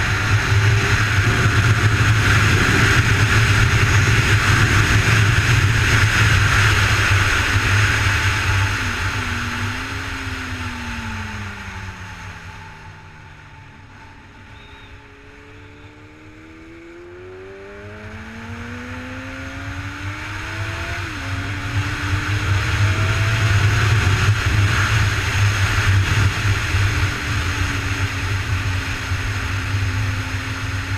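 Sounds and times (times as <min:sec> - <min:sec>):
wind noise: 0:00.0 - 0:14.9
motorcycle engine revving: 0:00.0 - 0:30.9.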